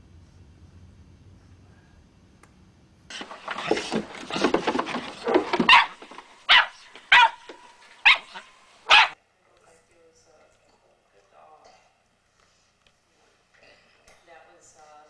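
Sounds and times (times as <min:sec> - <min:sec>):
dog barking and yipping: 0:05.2 - 0:09.2.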